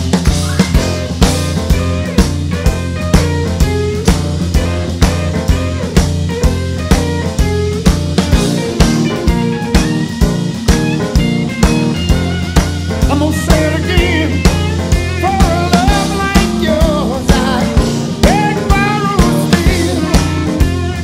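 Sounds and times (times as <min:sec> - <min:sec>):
bass line: 0:00.0 - 0:21.0
rock music drum beat: 0:00.0 - 0:21.0
person singing: 0:13.1 - 0:21.0.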